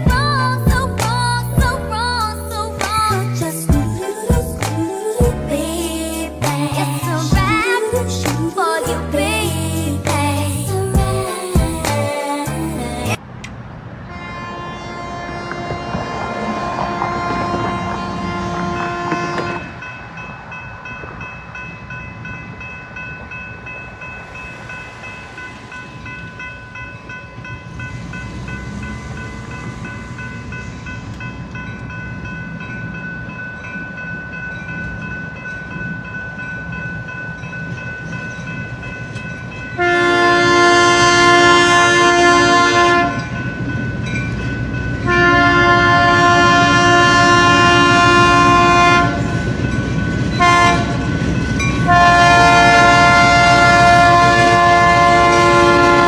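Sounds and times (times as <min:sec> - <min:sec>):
railroad crossing bell ringing: 0:00.0 - 0:13.2, 0:14.1 - 0:56.0
low rumble of train: 0:00.0 - 0:56.0
locomotive horn blast: 0:14.0 - 0:19.9, 0:39.8 - 0:43.3, 0:45.0 - 0:49.3, 0:50.4 - 0:51.0, 0:51.8 - 0:56.0.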